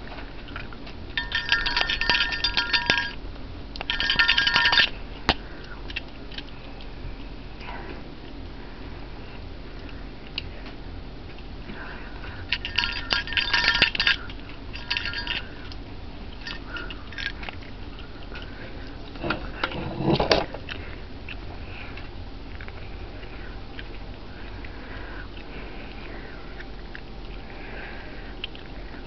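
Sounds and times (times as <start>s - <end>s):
china plate clinking and rattling: 1.2s - 3.2s, 3.9s - 4.9s, 12.5s - 15.5s.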